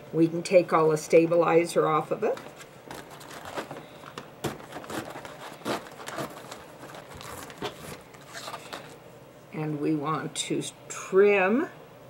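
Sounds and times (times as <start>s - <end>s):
stabilizer tearing and crinkling: 2.4s - 9.0s.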